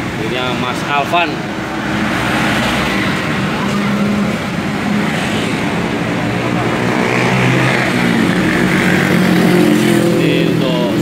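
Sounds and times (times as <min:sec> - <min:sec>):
motor vehicles passing: 0:00.0 - 0:11.0.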